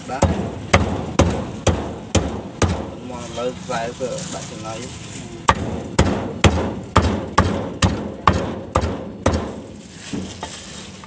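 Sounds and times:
cleaver chopping on wooden block: 0:00.2 - 0:03.0, 0:05.5 - 0:09.6.

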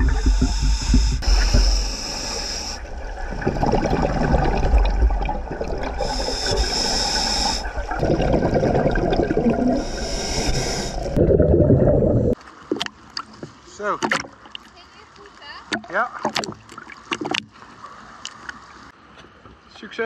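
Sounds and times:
regulator hissing inhalations: 0:00.0 - 0:03.0, 0:06.0 - 0:07.9, 0:09.7 - 0:11.2
gurgle of exhaled bubbles: 0:02.8 - 0:12.4.

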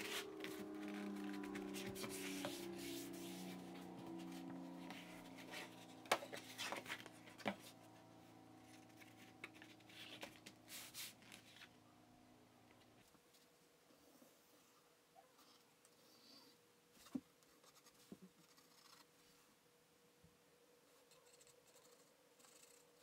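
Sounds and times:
cardboard rubbing and scraping: 0:00.0 - 0:08.0.

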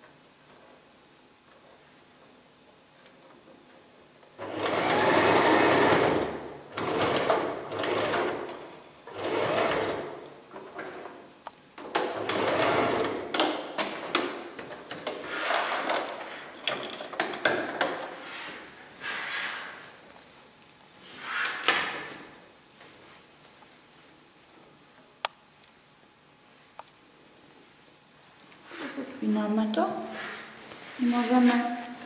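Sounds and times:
sewing machine stitching: 0:04.4 - 0:10.2, 0:12.0 - 0:13.3.

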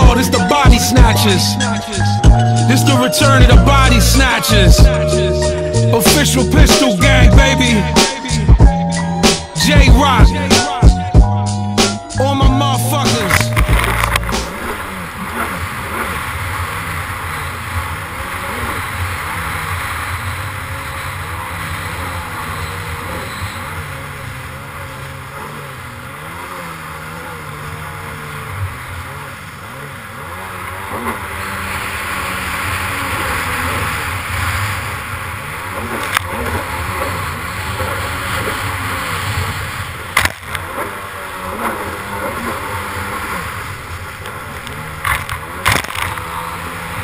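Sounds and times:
jet ski engine running: 0:00.0 - 0:47.0
rush of spray and wind: 0:14.3 - 0:47.0.

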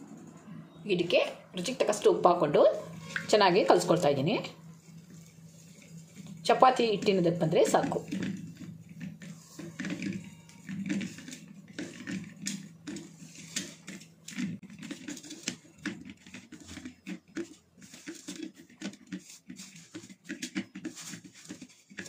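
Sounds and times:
hands squelching wet dough: 0:01.6 - 0:22.0.

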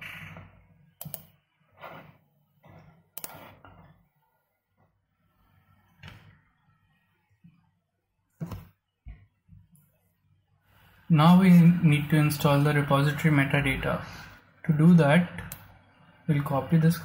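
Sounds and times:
computer mouse clicks: 0:00.3 - 0:01.4, 0:03.1 - 0:03.8.

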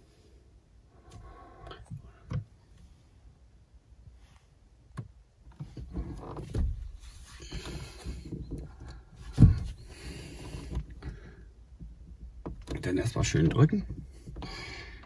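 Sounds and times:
low rubbing and bumps: 0:05.6 - 0:14.7.

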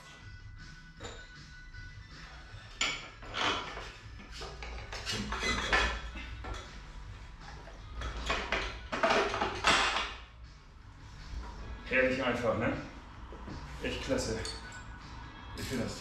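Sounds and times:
metal tools clinking and scraping: 0:01.0 - 0:01.4, 0:02.6 - 0:06.9, 0:14.0 - 0:15.0.

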